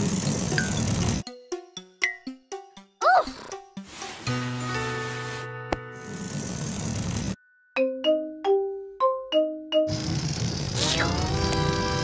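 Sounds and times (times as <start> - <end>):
rushing whirr rising in pitch: 9.9 - 12.0.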